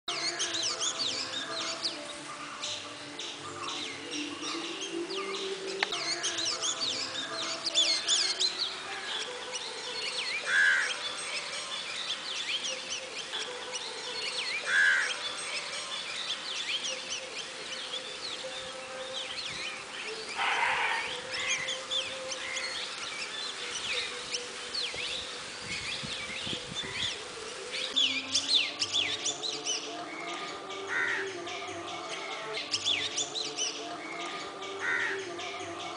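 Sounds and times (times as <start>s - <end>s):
bird fledgling begging calls: 14.6s - 18.0s, 19.2s - 27.2s.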